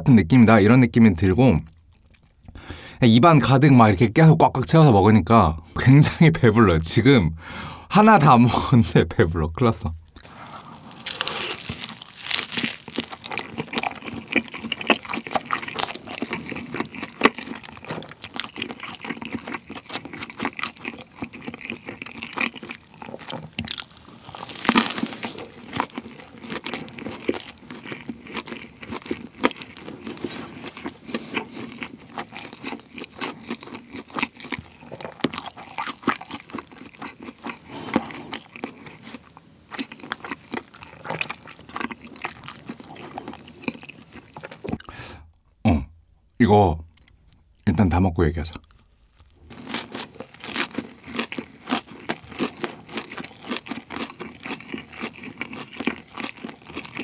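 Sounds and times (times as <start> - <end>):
chewing and crunching: 1.7 - 2.6, 10.0 - 44.9, 48.4 - 57.0.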